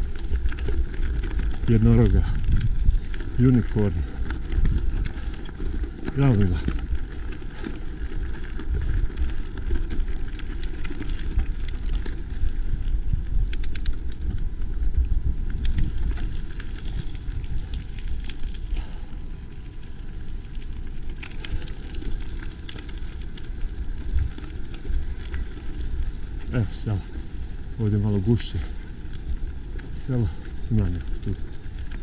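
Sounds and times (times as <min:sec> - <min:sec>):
bike clicks and rattles: 0:00.0 - 0:32.0
wind rumble on microphone: 0:00.0 - 0:32.0.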